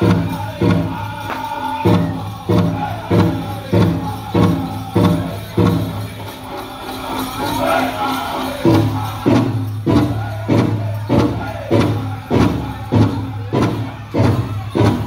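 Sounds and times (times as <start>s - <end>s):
big drum beating steadily: 0.0s - 15.0s
singers' voices: 0.0s - 15.0s.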